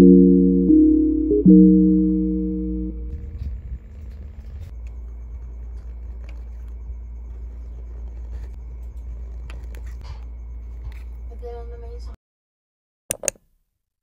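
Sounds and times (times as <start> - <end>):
steady low rumble: 0.0 - 9.6
pen scratching on paper: 5.4 - 11.1.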